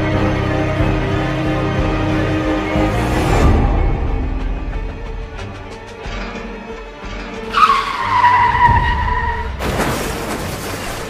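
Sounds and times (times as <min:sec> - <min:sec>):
dark background music: 0:00.0 - 0:11.0
car tyres screeching: 0:07.1 - 0:10.9
car crash noise: 0:07.4 - 0:11.0.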